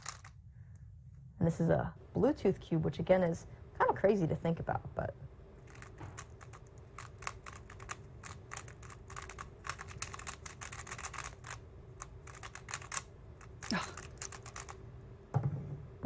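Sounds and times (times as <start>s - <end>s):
plastic puzzle cube clicking: 0.0s - 0.3s, 5.7s - 14.8s.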